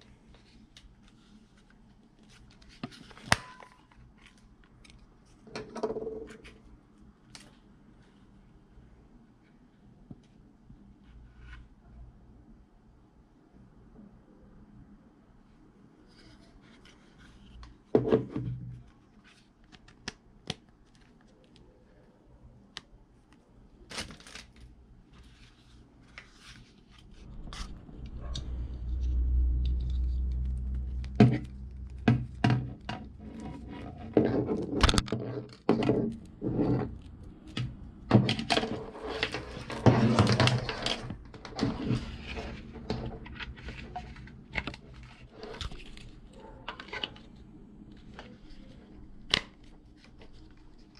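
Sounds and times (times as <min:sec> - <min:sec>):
cord rustling and scraping: 0:23.3 - 0:50.9
low rumble: 0:27.1 - 0:34.2.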